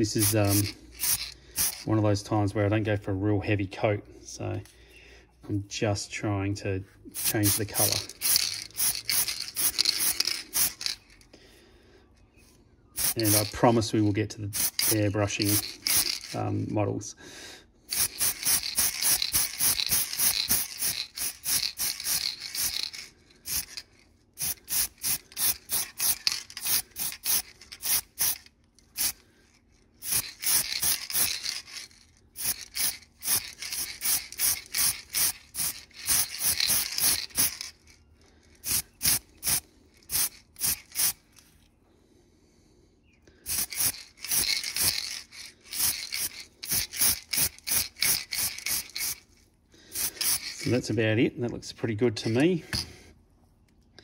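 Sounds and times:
spray paint can hissing: 0.0 - 1.9, 7.2 - 11.0, 13.0 - 13.8, 14.5 - 16.4, 17.9 - 23.8, 24.4 - 29.2, 30.0 - 37.8, 38.6 - 41.3, 43.5 - 49.3, 49.9 - 50.7.

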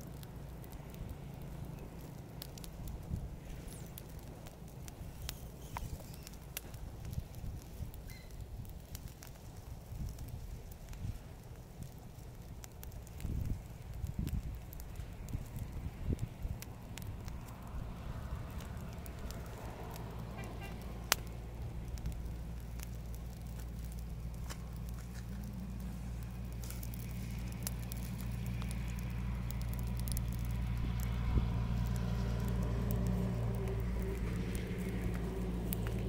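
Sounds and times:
twig fire crackling: 0.0 - 36.0
low drone: 24.5 - 36.0.

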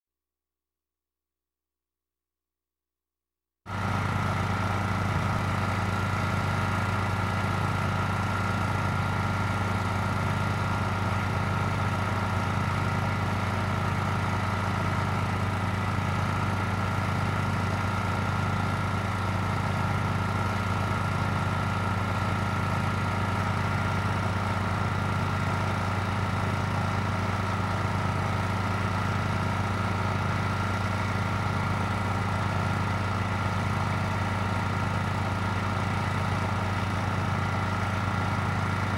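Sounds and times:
engine idling: 3.7 - 38.9.

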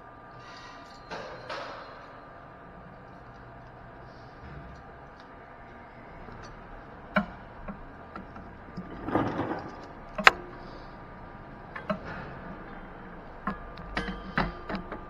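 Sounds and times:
parking garage hum: 0.0 - 15.0.

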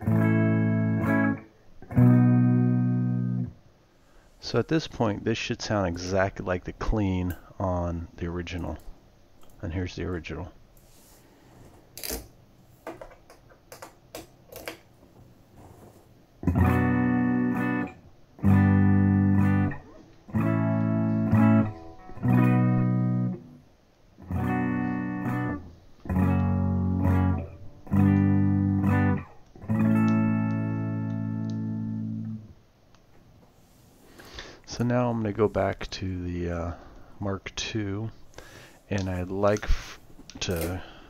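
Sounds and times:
electric guitar strummed chords: 0.0 - 3.6, 16.4 - 23.6, 24.2 - 32.6.

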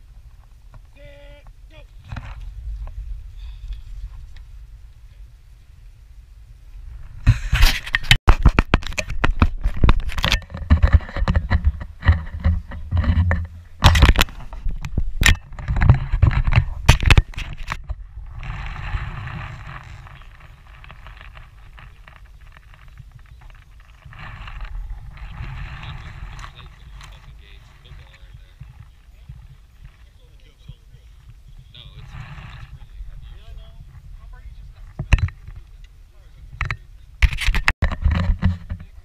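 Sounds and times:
camera handling scraping and rubbing: 7.0 - 30.4, 31.1 - 35.8, 36.6 - 39.0.

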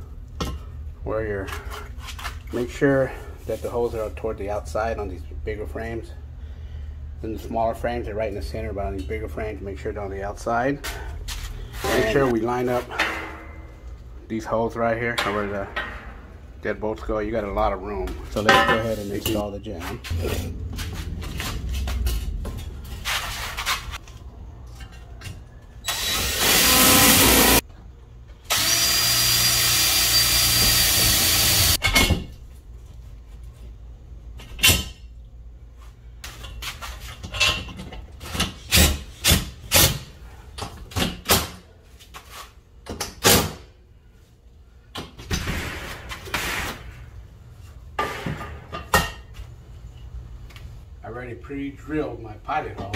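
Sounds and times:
cordless drill driving screws: 25.9 - 27.6, 28.5 - 31.8.

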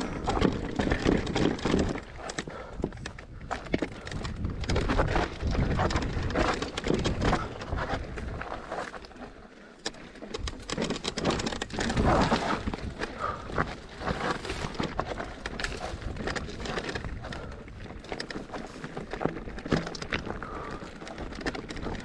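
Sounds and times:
bike rattling and knocking: 0.0 - 22.0.

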